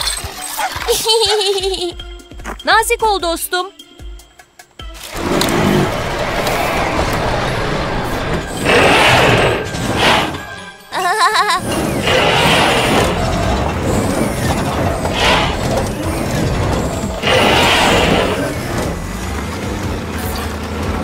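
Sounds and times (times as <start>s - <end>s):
background music: 0.0s - 21.0s
cartoon excavator engine hum: 5.0s - 21.0s.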